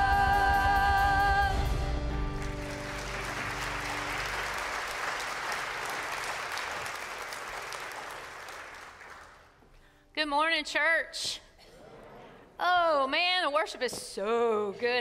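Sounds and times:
congregation applauding: 0:02.3 - 0:09.7.

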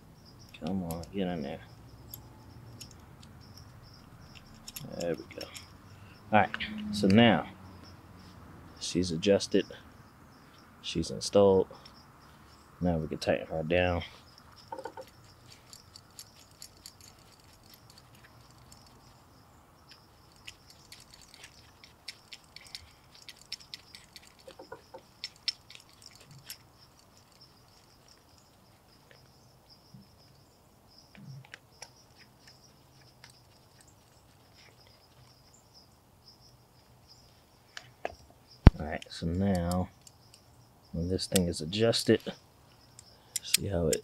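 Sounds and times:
small metal parts clicking: 0:00.4 - 0:01.2, 0:02.0 - 0:05.8, 0:14.2 - 0:19.2, 0:19.8 - 0:29.2, 0:31.3 - 0:35.5, 0:39.0 - 0:40.5, 0:41.2 - 0:44.0.

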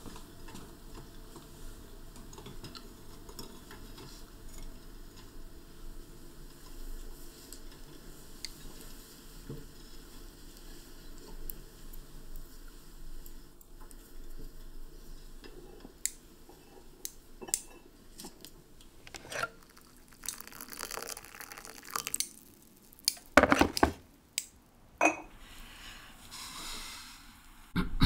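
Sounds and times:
small hard objects clicking: 0:19.6 - 0:23.4
hiss: 0:25.6 - 0:27.7.

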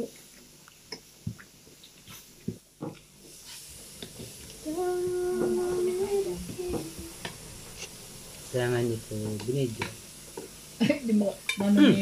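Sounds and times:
meat sizzling on a grill: 0:01.1 - 0:12.0
steady held tone: 0:04.4 - 0:11.0.

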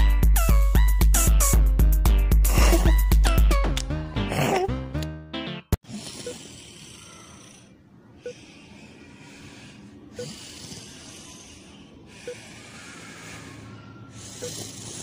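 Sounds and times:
cartoon snoring: 0:04.2 - 0:04.8, 0:05.8 - 0:15.0.

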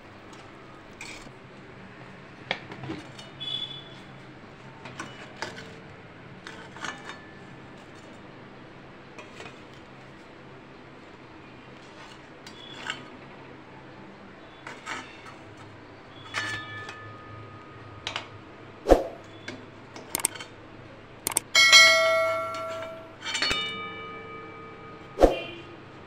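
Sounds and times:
metal spatula clinking on steel: 0:21.3 - 0:24.7.

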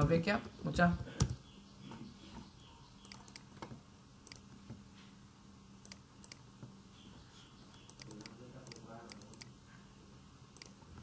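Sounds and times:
low electrical hum: 0:00.0 - 0:11.0
keyboard and mouse clicks: 0:03.0 - 0:04.8, 0:05.8 - 0:06.4, 0:07.7 - 0:09.5.

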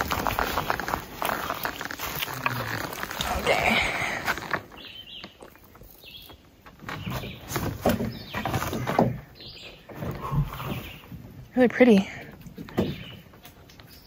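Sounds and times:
footsteps on rocky dirt trail: 0:00.0 - 0:09.9.

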